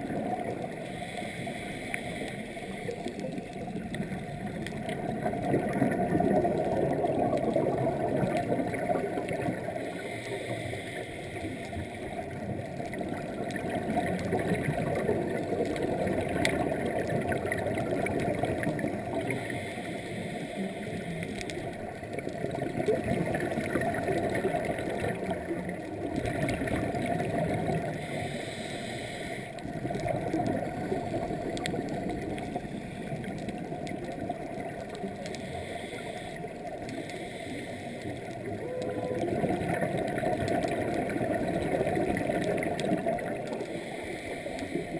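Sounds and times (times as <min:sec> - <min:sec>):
regulator inhalation hiss: 0:00.7 - 0:03.1, 0:09.8 - 0:12.3, 0:19.3 - 0:21.4, 0:27.9 - 0:29.6, 0:35.3 - 0:38.2, 0:43.6 - 0:44.9
bubbling exhalation underwater: 0:03.6 - 0:09.8, 0:13.0 - 0:19.3, 0:38.4 - 0:43.6.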